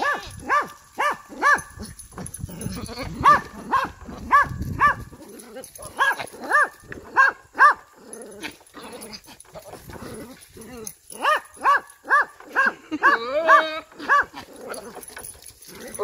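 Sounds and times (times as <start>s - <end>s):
rustling on dry leaves: 0.0s - 16.0s
goat yelping calls: 11.3s - 14.7s.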